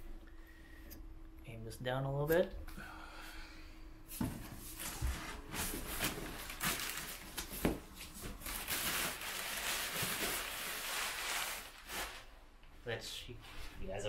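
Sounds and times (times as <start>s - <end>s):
packing paper rustling: 4.7s - 12.4s.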